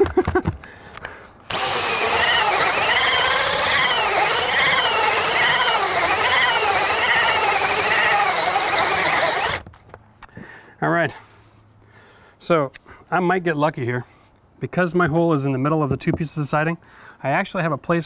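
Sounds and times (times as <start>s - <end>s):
drill whine cutting through wood: 1.5s - 9.6s.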